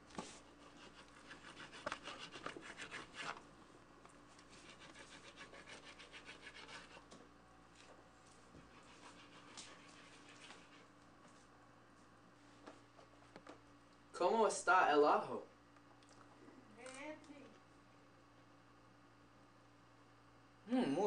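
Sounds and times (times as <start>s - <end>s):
knife sawing through fish: 0.7s - 3.4s, 4.5s - 7.0s, 8.7s - 10.8s.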